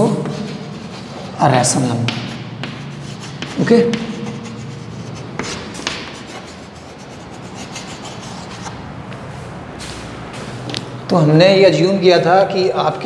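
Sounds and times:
chalk scratching on chalkboard: 0:00.0 - 0:08.8
chalk tapping: 0:00.0 - 0:09.2.

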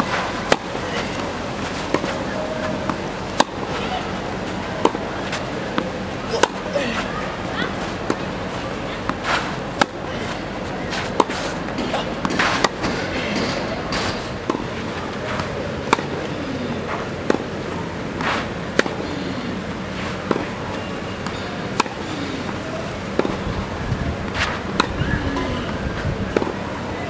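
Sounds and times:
tennis ball struck by rackets: 0:01.9 - 0:04.2, 0:04.8 - 0:07.2, 0:09.1 - 0:17.6, 0:18.2 - 0:19.1, 0:20.0 - 0:23.6, 0:24.3 - 0:25.6, 0:26.3 - 0:26.6
shoes scuffing on court: 0:06.5 - 0:13.0, 0:18.2 - 0:18.5, 0:24.2 - 0:24.9.

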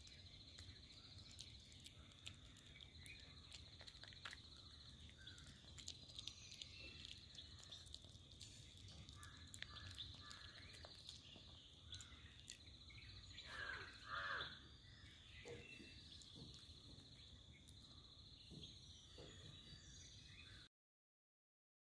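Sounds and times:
bird calling: 0:04.6 - 0:20.6.

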